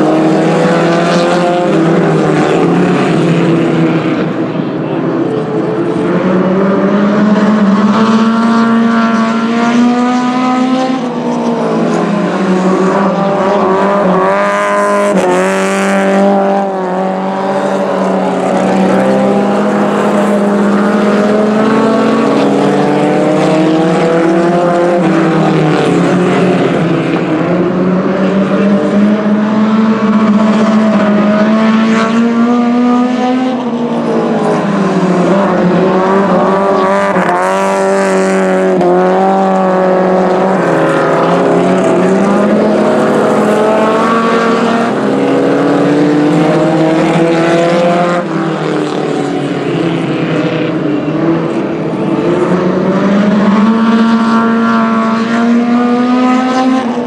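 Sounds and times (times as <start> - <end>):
race car engines at full throttle: 0.0 - 57.0
race car passing close: 0.0 - 57.0.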